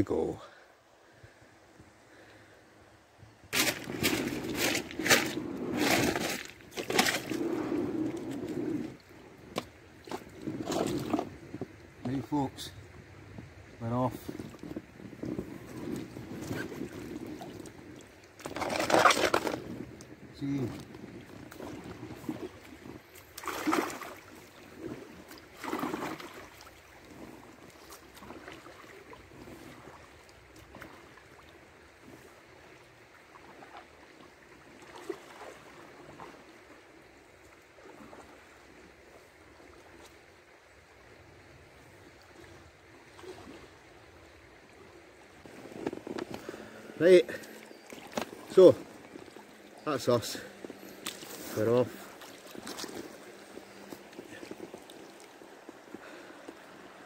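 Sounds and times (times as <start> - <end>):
kayak hull crunches and scrapes: 3.5 - 12.2, 14.1 - 31.1, 45.4 - 57.0.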